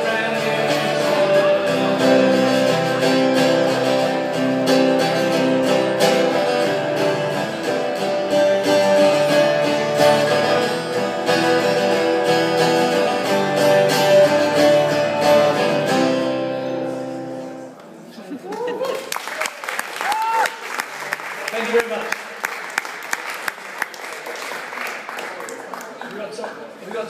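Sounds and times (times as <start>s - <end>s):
acoustic guitars strummed and picked: 0.0s - 18.0s.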